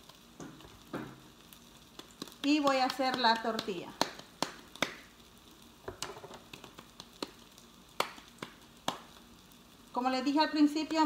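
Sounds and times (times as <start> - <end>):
hands patting dough: 1.9 - 5.1, 5.9 - 9.2.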